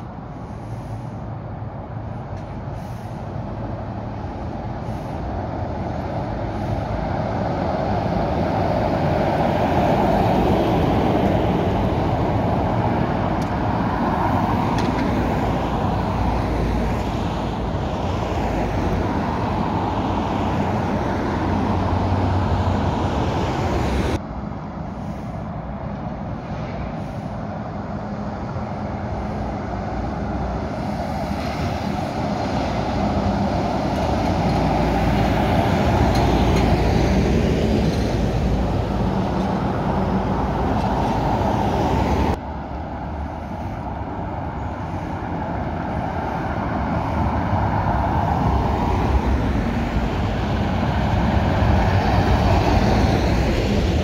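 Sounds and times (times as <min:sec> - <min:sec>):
cars passing: 0:00.0 - 0:54.0
lorry passing by: 0:00.0 - 0:54.0
road traffic: 0:00.0 - 0:54.0.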